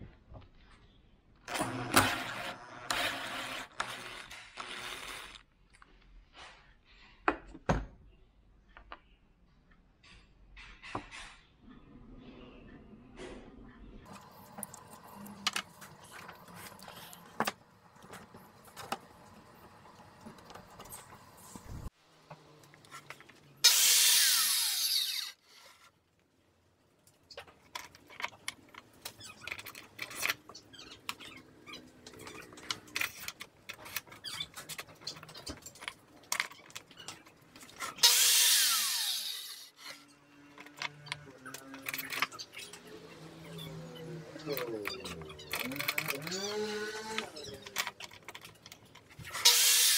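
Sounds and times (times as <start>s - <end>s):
circular saw spinning down: 23.7s - 25.4s, 38.0s - 39.7s.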